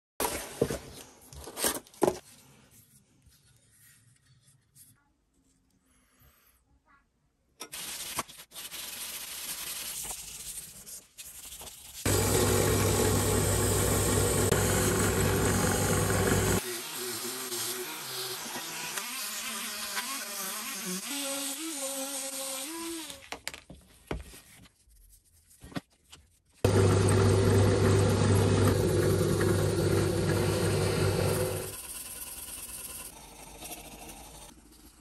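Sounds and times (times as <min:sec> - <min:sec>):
drill press humming: 0:12.1 - 0:16.6, 0:26.7 - 0:31.8.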